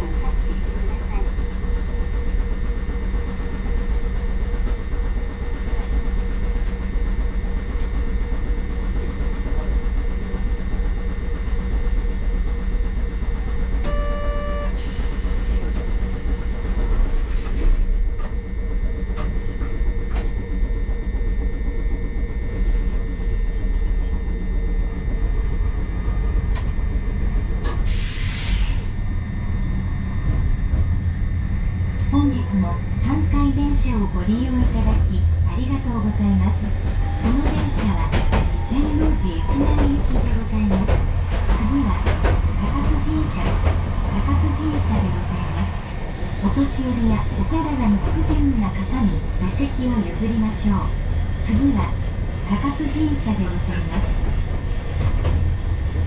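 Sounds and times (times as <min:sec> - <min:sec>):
streetcar rumble and hum: 0:00.0 - 0:56.0
short beep: 0:13.8 - 0:14.8
air hiss: 0:27.8 - 0:28.9.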